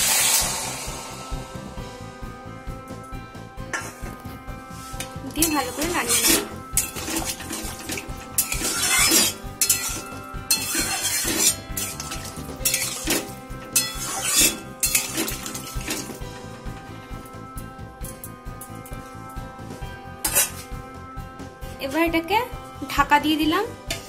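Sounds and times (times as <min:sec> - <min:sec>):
metal spatula scraping a pan: 0:04.7 - 0:16.3, 0:20.2 - 0:20.7.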